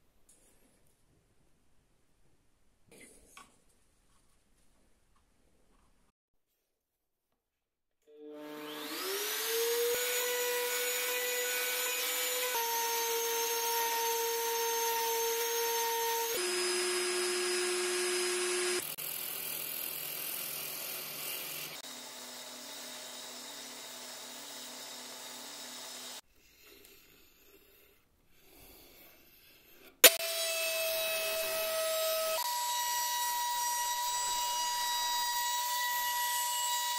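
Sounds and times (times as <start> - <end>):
router motor whining: 8.1 - 26.2
wood lathe running: 8.5 - 26.2.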